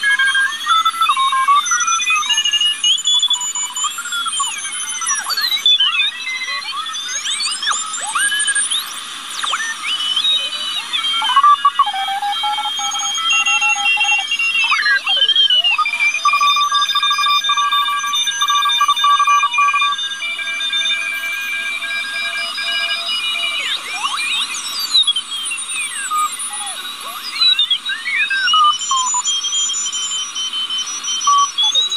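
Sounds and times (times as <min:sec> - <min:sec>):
sliding radio whistles: 0:00.0 - 0:31.9
morse code beeps: 0:11.1 - 0:24.4
radio static hiss: 0:21.3 - 0:28.1.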